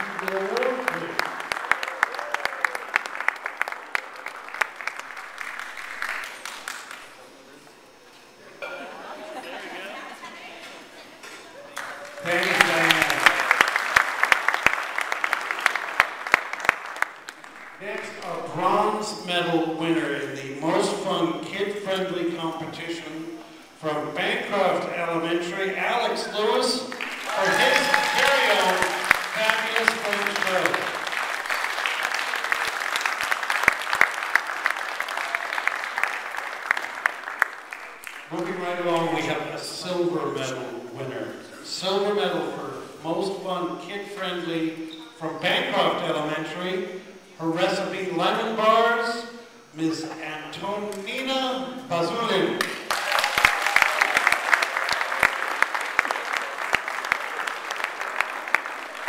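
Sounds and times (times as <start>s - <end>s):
audience applauding: 0.0s - 7.4s, 11.6s - 19.0s, 26.8s - 39.3s, 52.6s - 59.0s.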